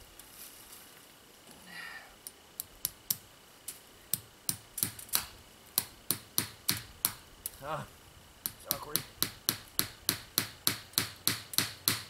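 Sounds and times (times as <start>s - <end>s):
hammer tapping a nail: 5.8s - 7.2s, 8.4s - 12.0s.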